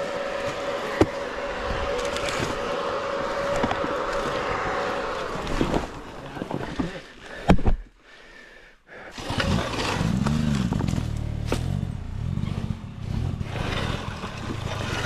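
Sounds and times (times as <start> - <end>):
dirt bike engine revving: 0.0 - 6.4, 9.1 - 15.0.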